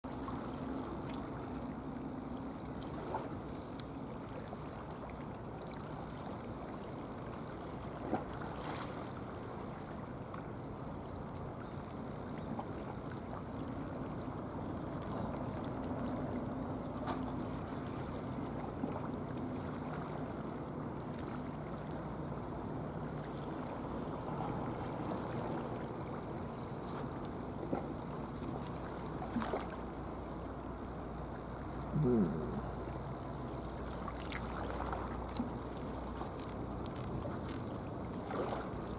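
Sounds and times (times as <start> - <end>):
seawater lapping against blocks: 0.1 - 38.9
faint ticks: 3.7 - 3.9
faint low hum: 31.3 - 36.0.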